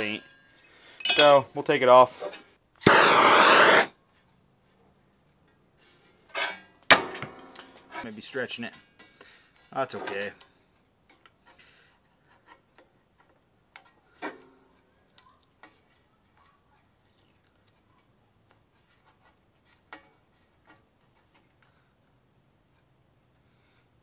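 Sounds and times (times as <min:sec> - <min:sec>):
razor scraper scraping: 0:02.8 - 0:03.9.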